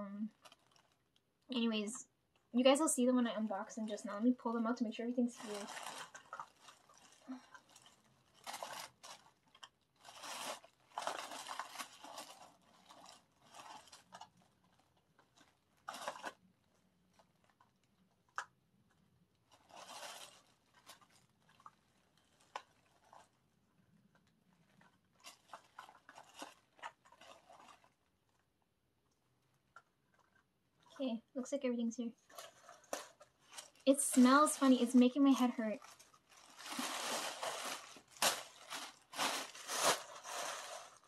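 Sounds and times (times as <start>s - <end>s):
plastic packaging crinkling: 0.2s - 1.8s, 3.5s - 28.5s, 32.2s - 41.0s.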